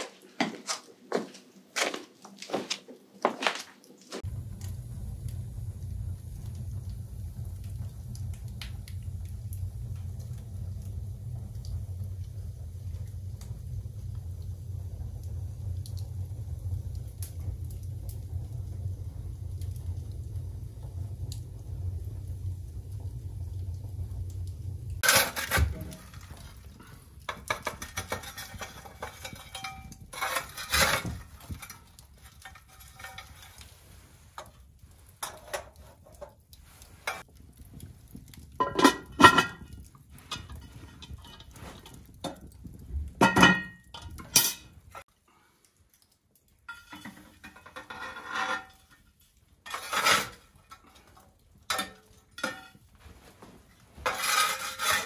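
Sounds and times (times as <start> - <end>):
metal shovel scraping hearth: 25.0 - 26.6, 27.6 - 34.0, 54.0 - 55.0
cast iron pot and lid clanking: 25.0 - 33.6, 38.5 - 42.5, 43.1 - 44.8, 46.7 - 49.0, 49.6 - 50.9, 51.6 - 52.8, 54.0 - 55.0.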